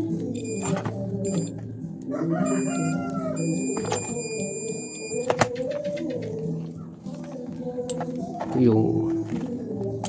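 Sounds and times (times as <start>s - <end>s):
multimeter buzzer beeping: 0.4s - 1.5s, 2.4s - 5.3s.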